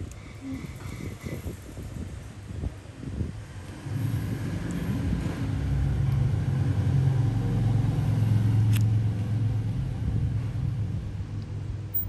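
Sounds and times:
low motor rumble: 0:02.5 - 0:12.0.

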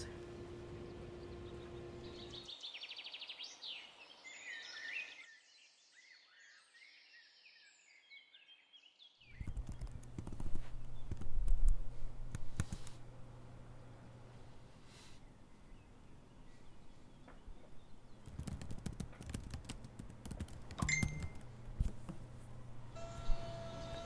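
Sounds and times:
low hum: 0:00.0 - 0:02.5
birds chirping: 0:00.0 - 0:05.2, 0:14.9 - 0:18.4
laptop keyboard typing: 0:09.4 - 0:13.0, 0:18.2 - 0:22.2.

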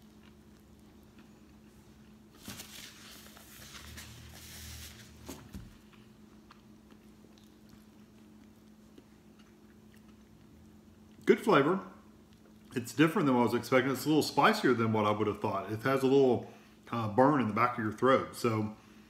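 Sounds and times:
person chewing: 0:00.0 - 0:02.4, 0:05.7 - 0:11.2, 0:12.1 - 0:12.8
faint steady hum: 0:00.0 - 0:19.0.

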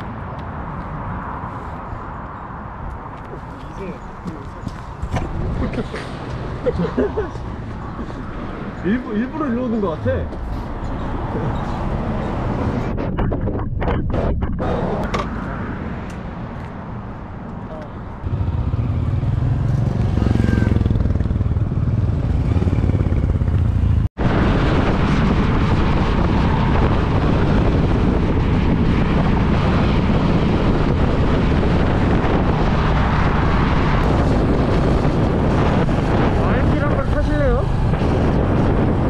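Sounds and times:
motorcycle engine running: 0:18.2 - 0:24.0.

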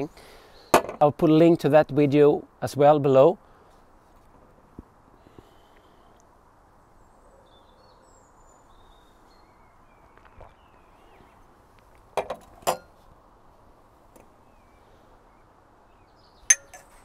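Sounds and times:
small birds chirping: 0:00.0 - 0:01.5, 0:04.7 - 0:12.1, 0:13.9 - 0:17.0
glasses clinking: 0:16.5 - 0:16.9.

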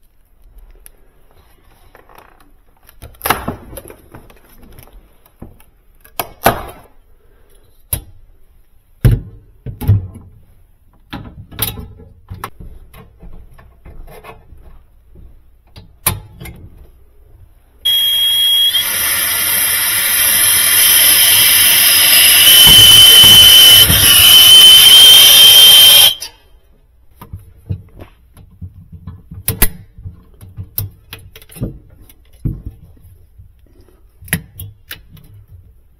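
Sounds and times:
high whistle: 0:17.8 - 0:26.4
brazing torch hissing: 0:17.9 - 0:26.3.

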